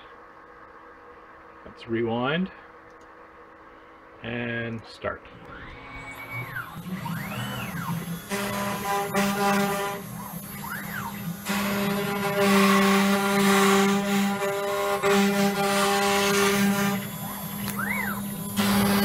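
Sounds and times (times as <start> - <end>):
router axis motors whining: 5.4 - 19.0
spindle running: 5.5 - 19.0
router bit cutting board hiss: 5.6 - 19.0.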